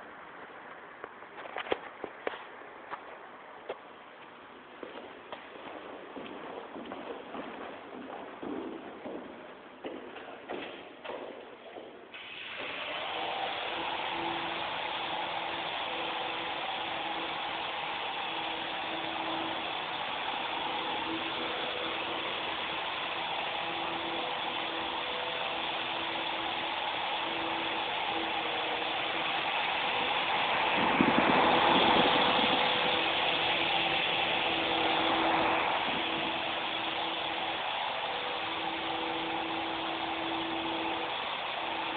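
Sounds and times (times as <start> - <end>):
remote-control helicopter whirring: 12.2 - 41.9.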